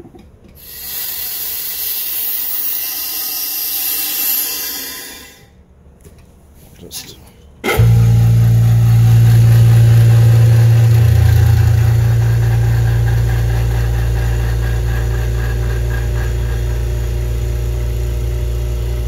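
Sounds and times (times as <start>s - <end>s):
vacuum pump humming: 7.6s - 19.0s.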